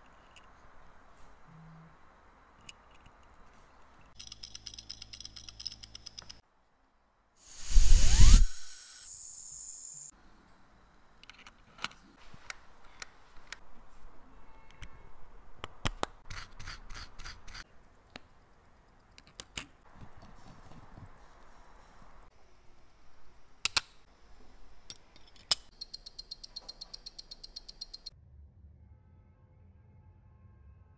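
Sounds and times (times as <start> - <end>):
watch parts clicking and tapping: 2.6 - 6.4, 11.2 - 13.6, 24.8 - 28.1
rush of noise with rising whistle: 7.4 - 10.1
light brushing or scraping: 7.5 - 9.0
watch movement ticking: 25.7 - 28.1.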